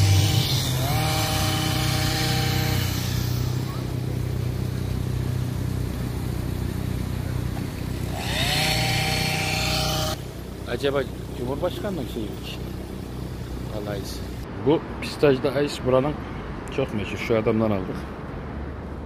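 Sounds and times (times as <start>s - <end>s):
string trimmer revving: 0.0s - 14.4s.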